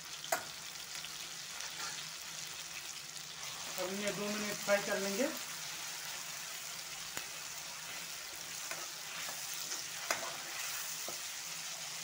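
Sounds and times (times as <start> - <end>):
food sizzling in hot oil: 0.0 - 12.0
metal spoon stirring and scraping: 1.6 - 2.1, 7.8 - 12.0.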